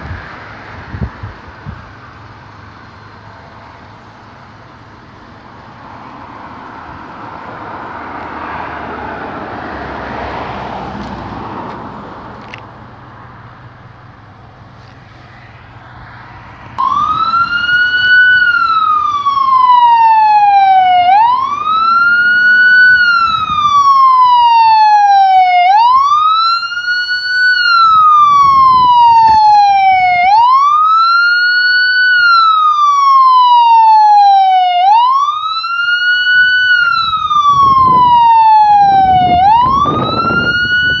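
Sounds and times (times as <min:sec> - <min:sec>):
police siren wailing: 0:15.1 - 0:41.0.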